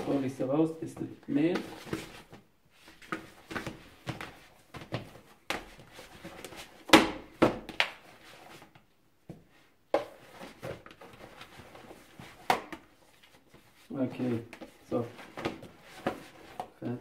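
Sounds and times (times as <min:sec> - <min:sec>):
dough thumping and slapping in bowl: 0:06.8 - 0:08.1.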